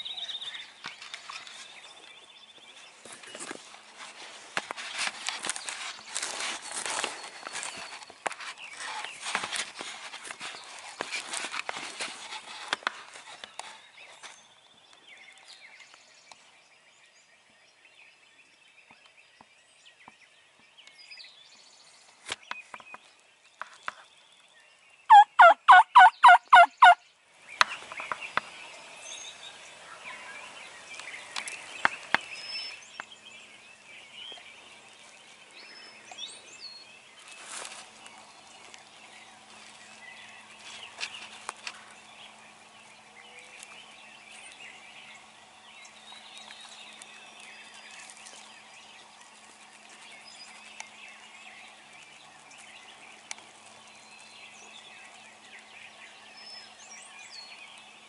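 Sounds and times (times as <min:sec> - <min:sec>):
songbirds singing: 0:00.0 - 0:58.0
rustling: 0:02.7 - 0:14.5, 0:37.2 - 0:42.1
turkey call yelps: 0:25.1 - 0:27.0.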